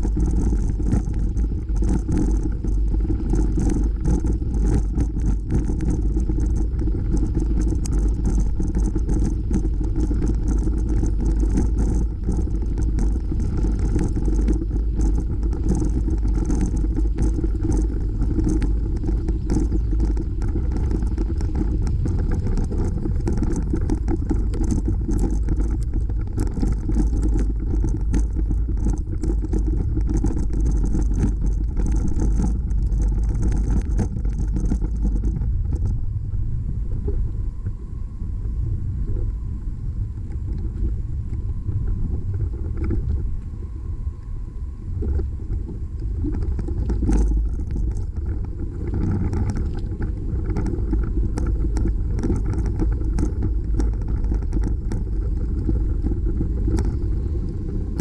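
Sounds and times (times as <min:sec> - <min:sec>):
bicycle rattling: 0:00.0 - 0:36.0, 0:45.0 - 0:58.0
wind on the microphone: 0:00.0 - 0:58.0.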